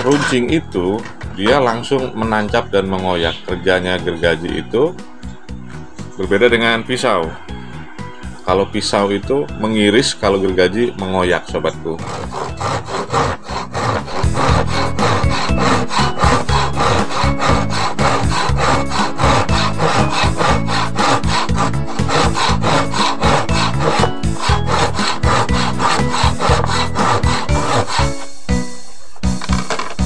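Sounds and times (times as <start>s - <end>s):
hand saw cutting wood: 0.0s - 0.5s, 12.0s - 28.7s.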